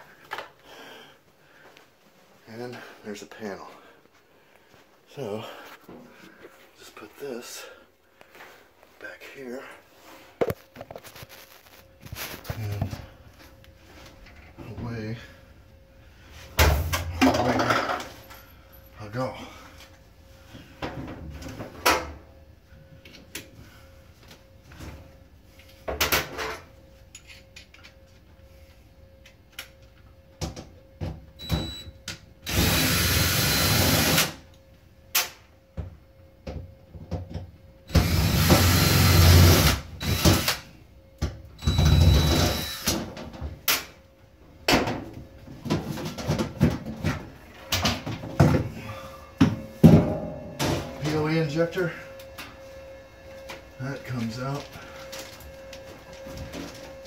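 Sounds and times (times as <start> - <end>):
cordless drill running: 32.4 - 34.4, 37.9 - 40.6, 41.6 - 43.0.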